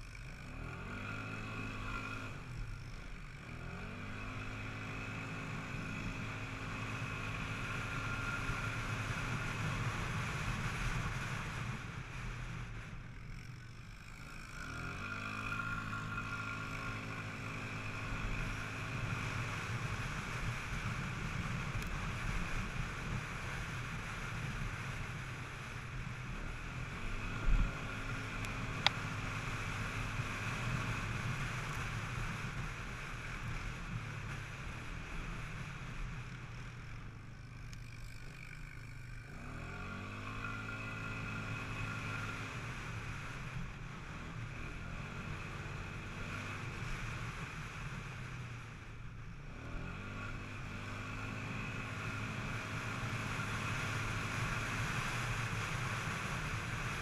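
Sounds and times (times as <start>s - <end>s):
quad engine running: 0.0s - 57.0s.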